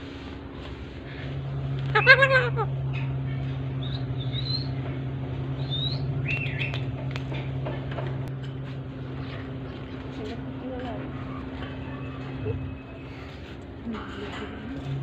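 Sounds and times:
steady low hum: 0.0 - 15.0
parakeets chirping: 1.9 - 7.0.

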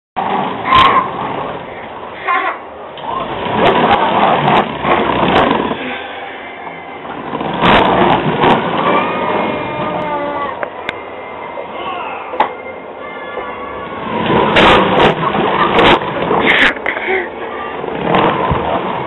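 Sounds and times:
plastic wheels rolling on hard floor: 3.4 - 5.8.

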